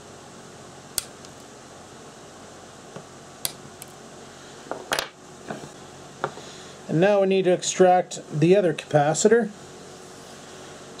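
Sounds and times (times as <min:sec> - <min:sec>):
nail clippers snipping wire: 0:01.0 - 0:01.4.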